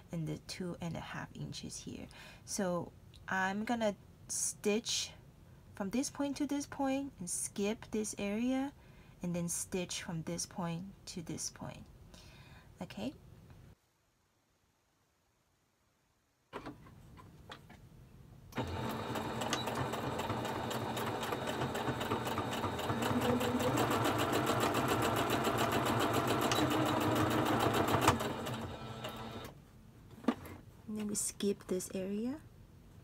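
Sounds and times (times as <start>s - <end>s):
sewing machine stitching: 18.6s - 29.5s.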